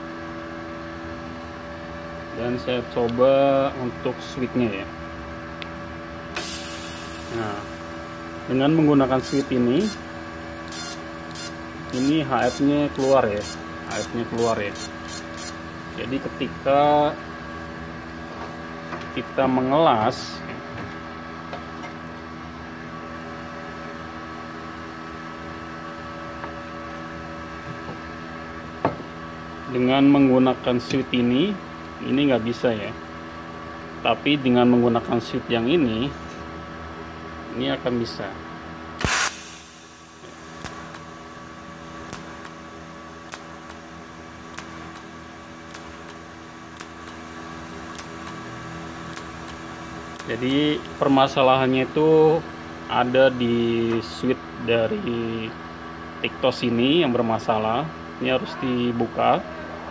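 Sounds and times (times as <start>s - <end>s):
welding arc noise: 6.3s - 18.8s, 39.0s - 54.0s
welder humming: 6.3s - 19.8s, 39.0s - 55.5s.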